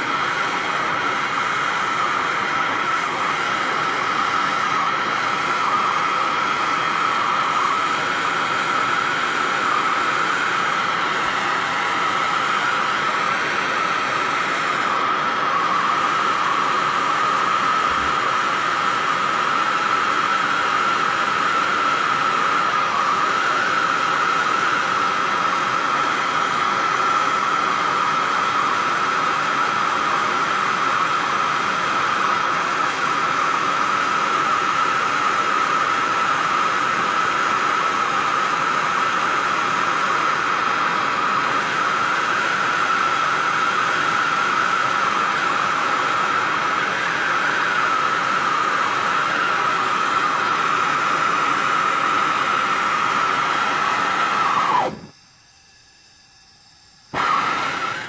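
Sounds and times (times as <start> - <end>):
torch flame hissing: 0.0 - 58.0
steady tone: 54.1 - 58.0.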